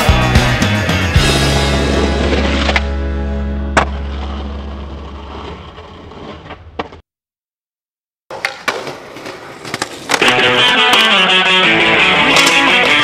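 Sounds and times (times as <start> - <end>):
song playing: 0.0 - 5.0
electric guitar music: 0.0 - 5.4, 10.2 - 13.0
skateboard rolling on asphalt: 3.7 - 7.0, 8.3 - 10.3
skateboard clacks: 8.3 - 11.5.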